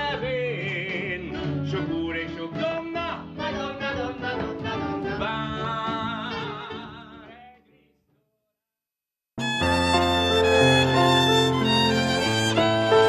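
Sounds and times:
person singing: 0.0s - 7.6s
instrumental accompaniment: 9.4s - 13.0s.

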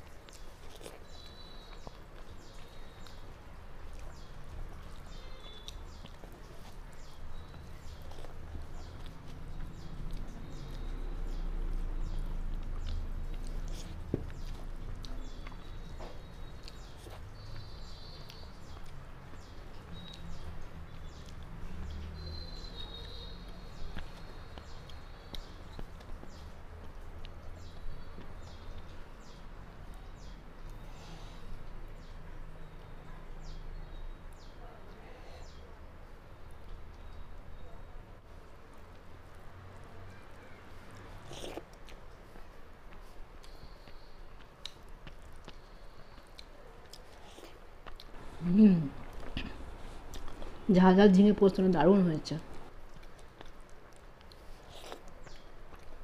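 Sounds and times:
person chewing: 0.0s - 22.2s, 38.5s - 50.7s, 52.5s - 56.0s.

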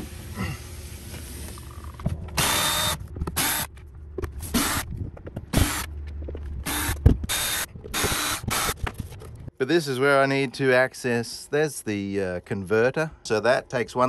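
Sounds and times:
cordless drill running: 2.4s - 3.7s, 6.6s - 8.8s.

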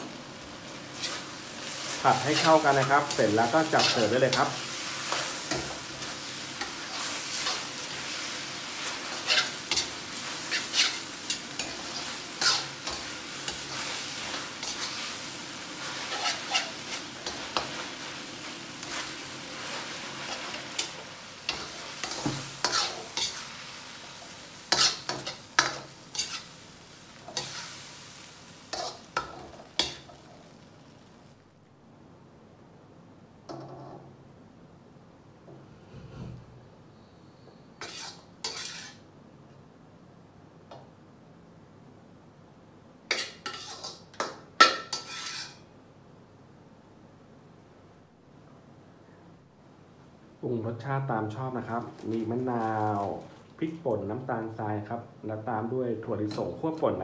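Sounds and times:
food sizzling in a wok: 0.0s - 31.5s, 37.8s - 39.1s, 43.1s - 45.7s, 50.8s - 57.0s
metal spatula scraping a wok: 0.9s - 18.2s, 18.8s - 26.6s, 27.2s - 30.2s, 37.8s - 39.1s, 43.1s - 45.6s.

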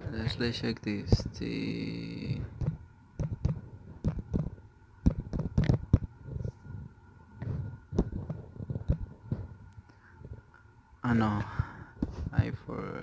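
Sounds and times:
faint steady hum: 0.0s - 13.0s
fingers tapping touchscreen: 2.6s - 6.1s, 7.5s - 9.1s.

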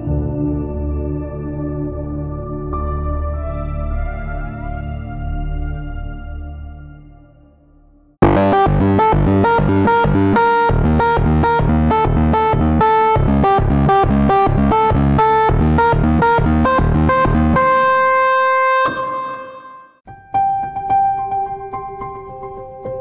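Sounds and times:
bass part: 7.8s - 18.3s
electric piano lead melody: 8.2s - 23.0s.

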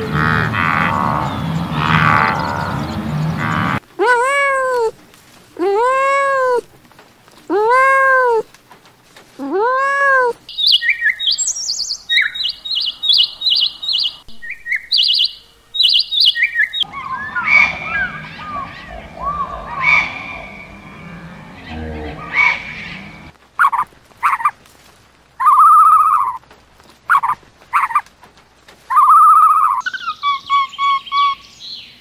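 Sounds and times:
low background noise: 0.0s - 32.0s
scattered bird chirps: 0.7s - 3.8s, 10.5s - 24.5s, 25.4s - 26.4s, 27.1s - 28.0s, 28.9s - 32.0s
bird calling in high chirps: 10.5s - 24.5s, 25.4s - 26.4s, 28.9s - 32.0s.

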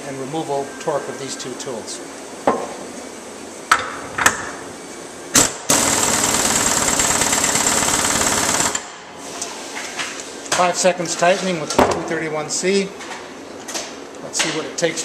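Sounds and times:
air impact wrench rattling: 5.4s - 8.9s.

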